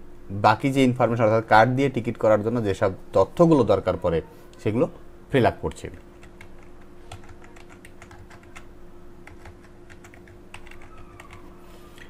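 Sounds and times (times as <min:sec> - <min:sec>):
faint hum: 0:00.0 - 0:12.0
keyboard keys clicking: 0:06.1 - 0:11.5.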